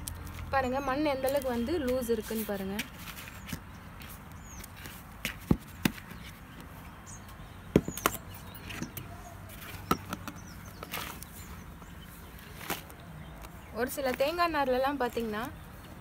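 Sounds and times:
plant pots knocking and tapping: 5.2 - 6.7, 7.6 - 12.0.

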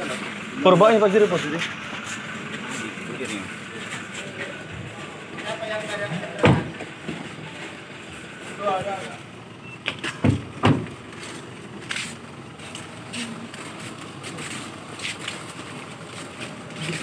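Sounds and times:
car doors slamming: 6.1 - 7.2, 9.8 - 11.0.

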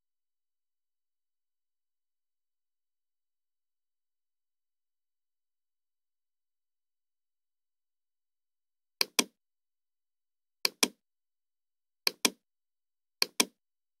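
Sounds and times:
computer mouse clicks: 9.0 - 9.3, 10.6 - 11.0, 12.1 - 12.4, 13.2 - 13.6.

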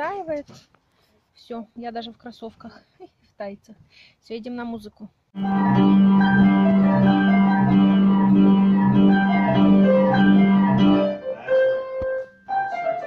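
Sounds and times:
piano playing: 5.4 - 13.0.

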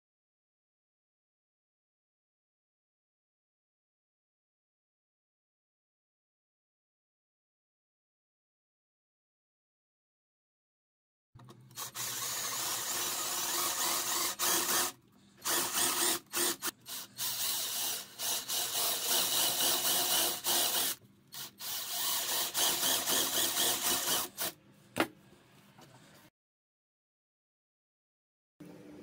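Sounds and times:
drill boring into wood: 11.7 - 24.6.

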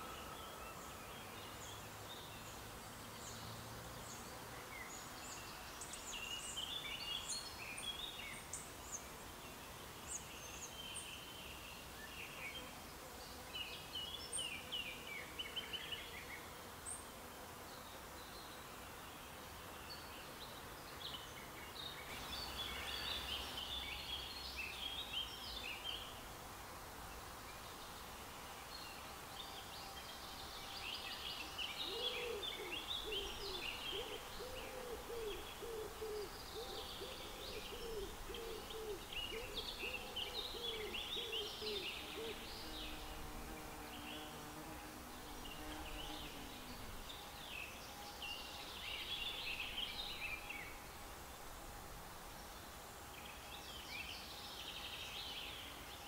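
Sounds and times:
outdoor background hiss: 0.0 - 56.0
birds chirping: 27.5 - 44.4.

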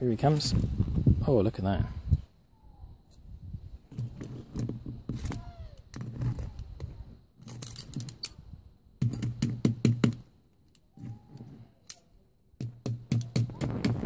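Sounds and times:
sharp clicking knocks: 9.0 - 10.2.

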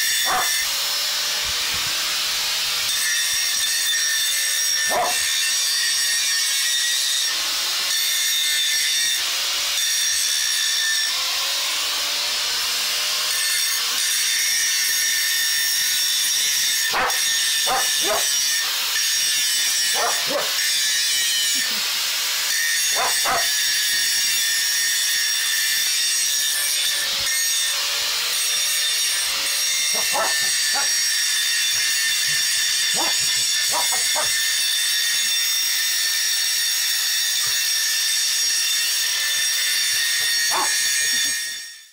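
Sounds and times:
angle grinder cutting metal: 0.0 - 41.9
dog barking: 0.2 - 0.6, 4.9 - 5.3, 16.9 - 18.4, 19.9 - 20.6, 22.9 - 23.6, 29.9 - 31.0, 32.9 - 34.3, 40.5 - 40.9.

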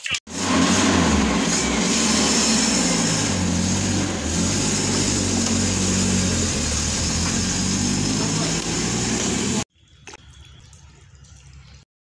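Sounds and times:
truck engine idling: 0.3 - 9.6.

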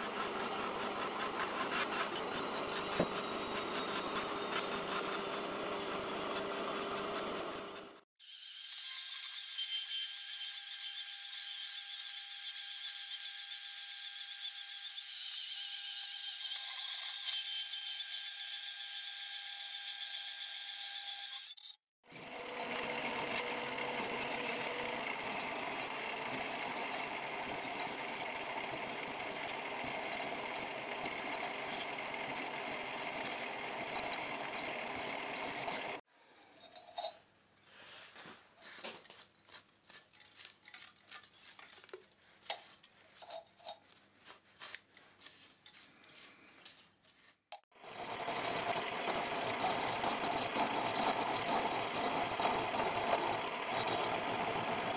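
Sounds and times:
bandsaw cutting steel: 0.0 - 36.0, 47.5 - 54.9
milling drill boring into steel: 0.0 - 36.0, 47.5 - 54.9
brush sweeping metal chips: 37.6 - 47.7.

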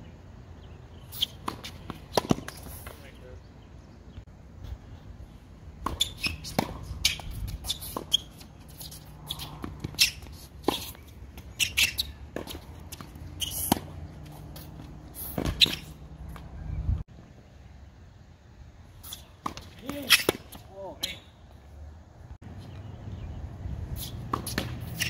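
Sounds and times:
sneakers squeaking on court: 1.0 - 3.1, 5.8 - 17.0, 19.0 - 21.5, 22.4 - 25.0
tennis ball bouncing: 1.2 - 2.9, 5.8 - 16.5, 19.2 - 20.7, 24.1 - 25.0
tennis racket hitting ball: 5.8 - 8.4, 9.0 - 15.9, 24.3 - 25.0.

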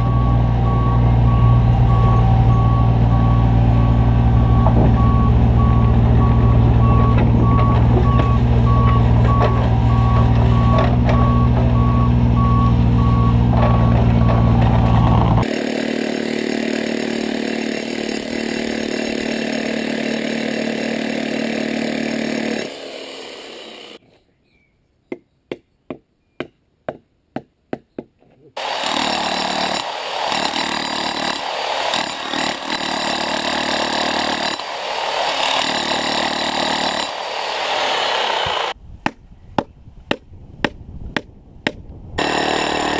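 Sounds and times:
reversing alarm beeping: 0.0 - 15.4
diesel machines running: 0.0 - 15.8, 28.6 - 38.8
electric demolition hammer: 13.8 - 24.0, 28.6 - 38.8, 42.2 - 42.9.

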